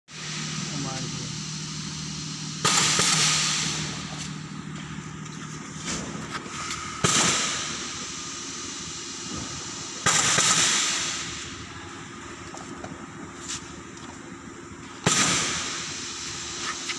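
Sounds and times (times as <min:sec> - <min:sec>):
pneumatic air hisses: 0:00.1 - 0:04.6, 0:05.7 - 0:11.7, 0:15.0 - 0:16.9
steady low hum: 0:00.1 - 0:16.9.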